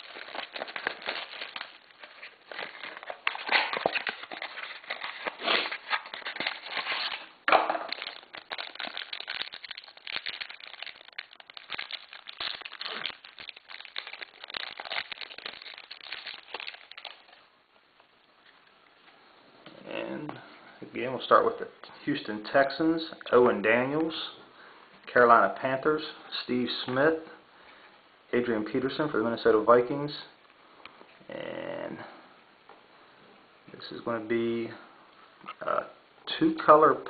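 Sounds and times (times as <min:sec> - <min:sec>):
plastic wrap snapping: 0:00.0 - 0:17.5
plastic wrap crinkling: 0:00.0 - 0:18.6.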